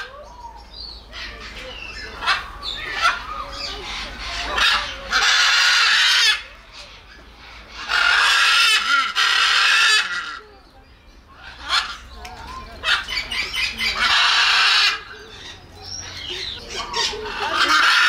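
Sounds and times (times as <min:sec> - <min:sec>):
parrot squawks: 0:01.1 - 0:06.5, 0:07.6 - 0:10.4, 0:12.8 - 0:15.2, 0:16.1 - 0:18.0
parrot screeching: 0:02.2 - 0:06.5, 0:07.7 - 0:10.4, 0:11.4 - 0:12.0, 0:12.8 - 0:15.2, 0:16.7 - 0:18.0.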